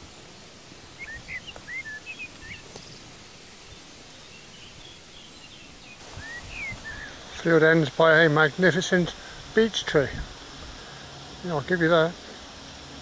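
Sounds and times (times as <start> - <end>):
wind through grass: 0.0 - 13.0
songbird chirping: 0.6 - 9.4.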